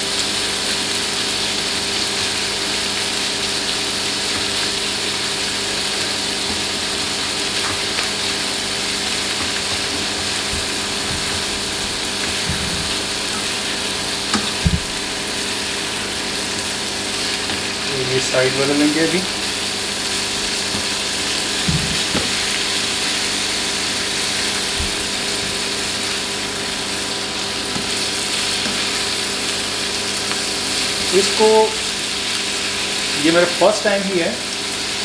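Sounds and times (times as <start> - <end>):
prawns sizzling in oil: 0.0 - 35.0
spatula knocking on pan: 14.2 - 15.1.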